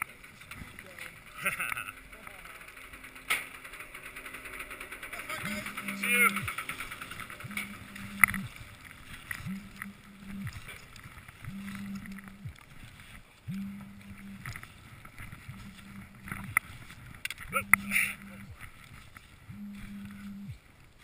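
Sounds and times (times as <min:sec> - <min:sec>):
low hum: 0:00.0 - 0:21.0
skis sliding through powder snow: 0:14.6 - 0:17.2.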